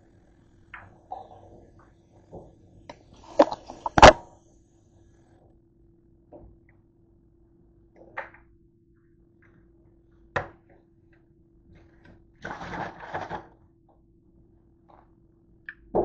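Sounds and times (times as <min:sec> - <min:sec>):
faint steady hum: 0:00.0 - 0:16.0
sharp plastic clack: 0:03.3 - 0:04.2.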